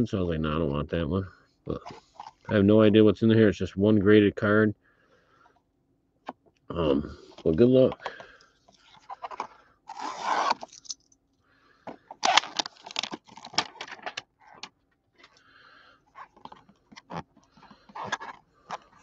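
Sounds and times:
plastic packaging crinkling: 0:12.2 - 0:14.2.

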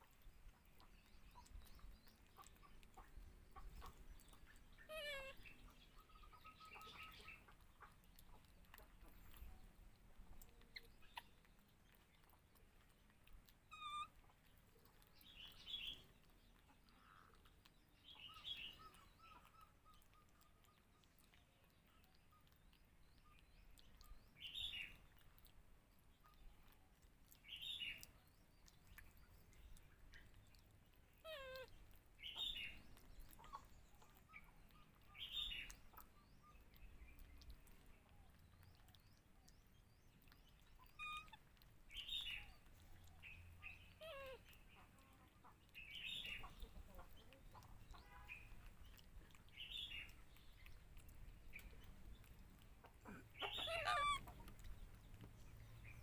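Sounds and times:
baby monkeys squeaking: 0:04.8 - 0:07.5, 0:13.7 - 0:14.2, 0:31.2 - 0:31.7, 0:40.8 - 0:41.4, 0:44.0 - 0:44.5, 0:53.0 - 0:54.7.

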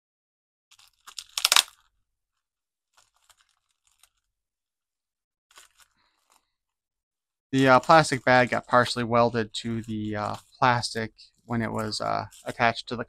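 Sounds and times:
plastic bag crinkling and tearing: 0:00.7 - 0:02.0, 0:02.8 - 0:04.3, 0:05.5 - 0:06.6, 0:07.6 - 0:13.0
faint rustles and clicks: 0:00.8 - 0:04.3, 0:05.5 - 0:06.6, 0:07.6 - 0:12.8.

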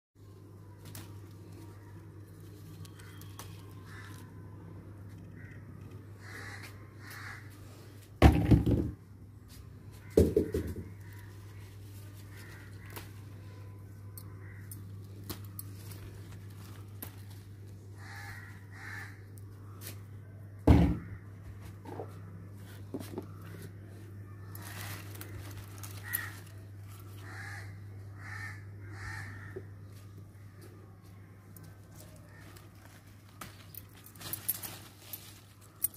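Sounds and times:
crows cawing: 0:00.8 - 0:08.0, 0:09.8 - 0:20.0, 0:20.8 - 0:35.9.

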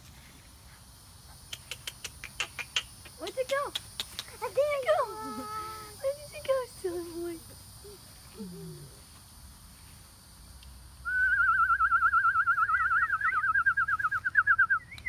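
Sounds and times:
warbling whistle: 0:11.0 - 0:15.0.

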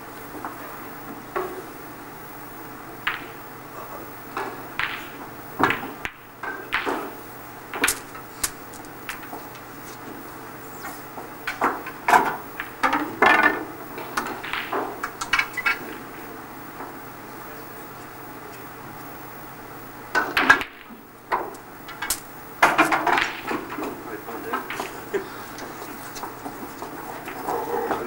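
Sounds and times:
steady low hum: 0:00.0 - 0:28.0
cue striking ball: 0:03.0 - 0:03.4, 0:04.3 - 0:08.3, 0:10.8 - 0:17.0, 0:20.2 - 0:22.0, 0:22.6 - 0:28.0
snooker balls clicking: 0:03.0 - 0:10.2, 0:10.8 - 0:17.1, 0:20.1 - 0:28.0
ball dropping into pocket: 0:11.5 - 0:16.0, 0:20.2 - 0:24.0.

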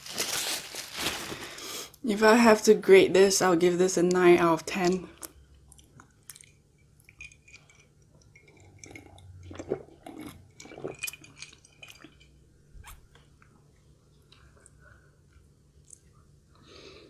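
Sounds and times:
person gulping and swallowing: 0:07.2 - 0:12.2.

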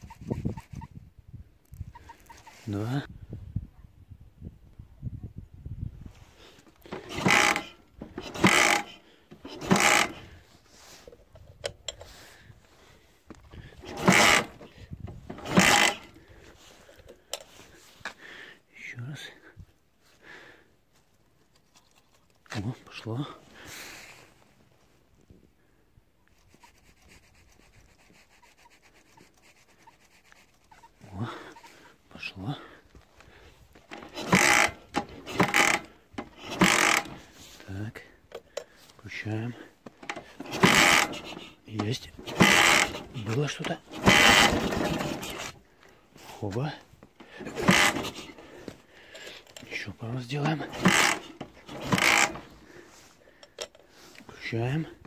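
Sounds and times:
motorcycle engine cranking: 0:06.7 - 0:10.5, 0:13.6 - 0:17.5, 0:33.8 - 0:37.4, 0:39.9 - 0:45.7, 0:46.5 - 0:54.3
hand rubbing on metal parts: 0:06.7 - 0:12.9, 0:13.6 - 0:18.0, 0:26.2 - 0:32.0, 0:33.7 - 0:55.0.

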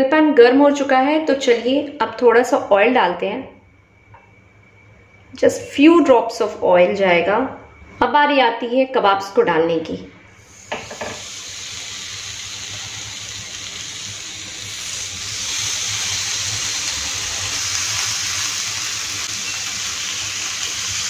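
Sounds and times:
patties sizzling in hot oil: 0:10.4 - 0:21.0.

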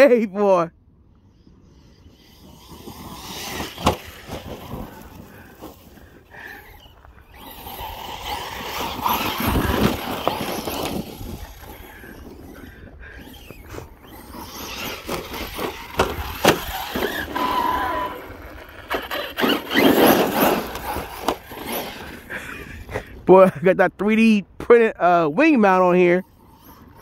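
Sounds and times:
electric motor whining: 0:01.2 - 0:22.6
tyres crunching on gravel and snow: 0:02.1 - 0:23.2.

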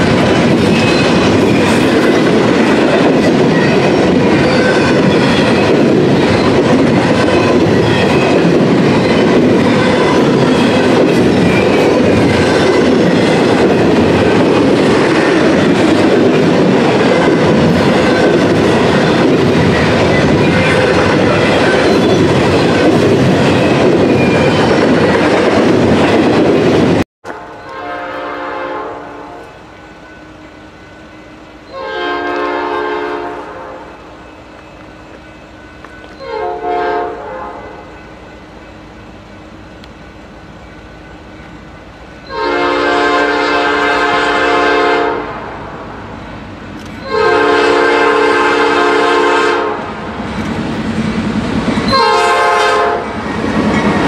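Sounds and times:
freight cars clickety-clack: 0:00.0 - 0:27.0, 0:50.0 - 0:54.0
locomotive rumble: 0:00.0 - 0:29.8
locomotive air horn blasts: 0:27.2 - 0:29.5, 0:31.7 - 0:33.9, 0:36.2 - 0:37.8, 0:42.3 - 0:45.3, 0:47.0 - 0:49.9, 0:51.9 - 0:53.0.

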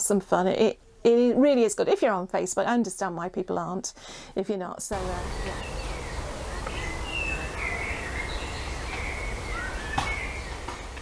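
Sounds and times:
birds chirping: 0:04.9 - 0:11.0
low outdoor rumble: 0:04.9 - 0:11.0.

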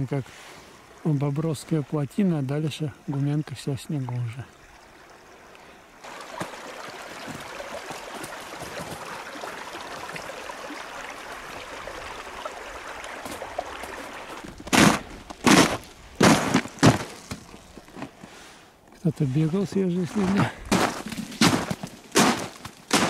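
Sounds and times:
water rushing through dam: 0:06.0 - 0:17.5
footsteps crunching through icy snow: 0:13.2 - 0:18.4, 0:19.2 - 0:23.0.

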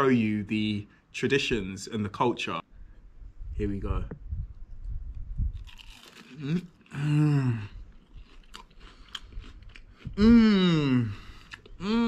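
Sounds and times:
crunching and chewing: 0:05.4 - 0:10.2, 0:11.2 - 0:11.8
drawn-out vocal exclamation: 0:10.1 - 0:12.0.

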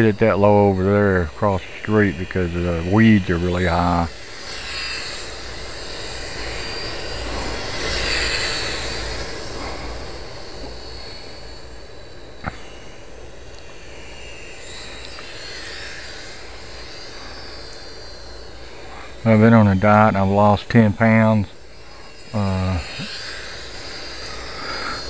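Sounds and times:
model plane motor whining: 0:00.0 - 0:25.0.

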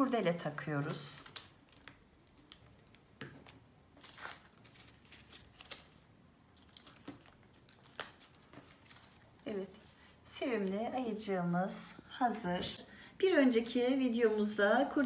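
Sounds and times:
paper rustling and tapping: 0:06.6 - 0:09.2.

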